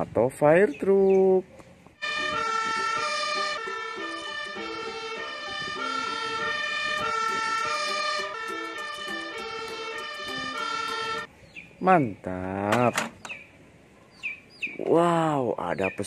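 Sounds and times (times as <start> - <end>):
fire engine siren: 2.0 - 11.3.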